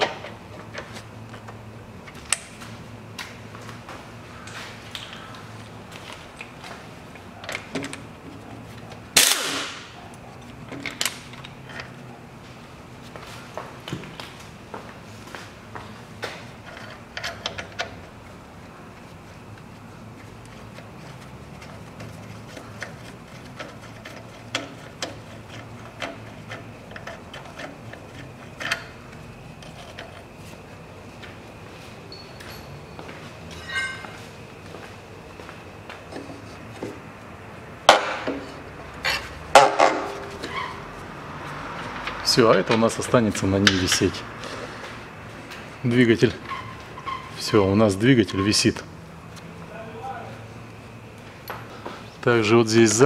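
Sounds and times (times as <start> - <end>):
metal clinks: 32.1 - 34.2.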